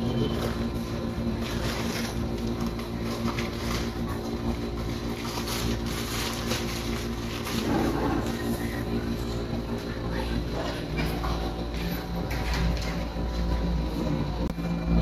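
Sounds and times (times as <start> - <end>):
low machine hum: 0.0 - 15.0
paper bag rustling: 1.3 - 8.8.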